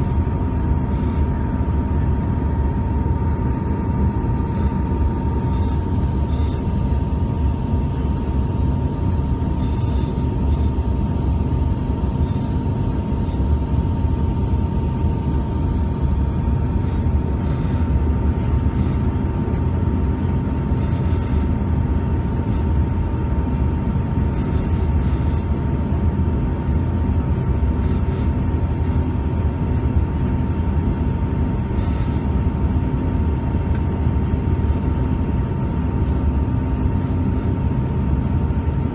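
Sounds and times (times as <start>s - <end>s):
low rumble of jet engines: 0.0s - 38.9s
steady high whine: 0.0s - 38.9s.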